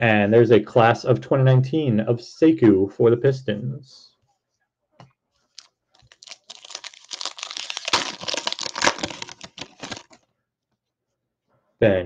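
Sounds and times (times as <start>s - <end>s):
card pack wrapper crinkling: 5.5s - 10.2s.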